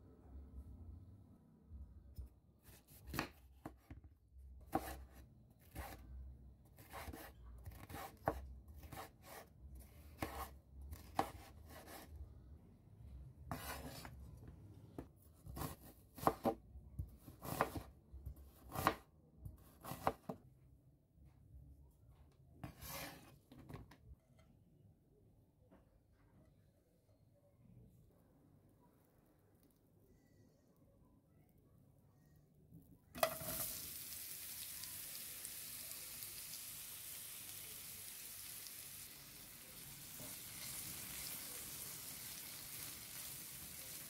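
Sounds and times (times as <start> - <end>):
knife slicing on wooden board: 4.7 - 6.0, 13.5 - 14.1, 22.6 - 23.3.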